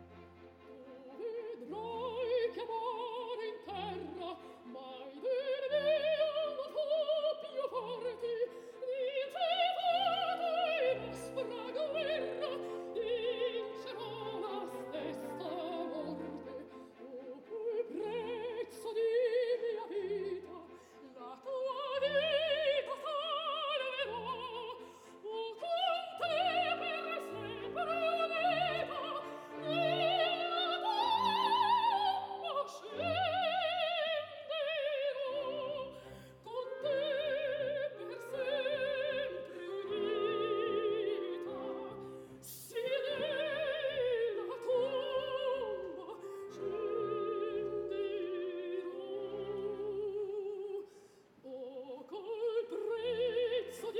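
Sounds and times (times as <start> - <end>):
operatic soprano singing: 0.0 - 53.9.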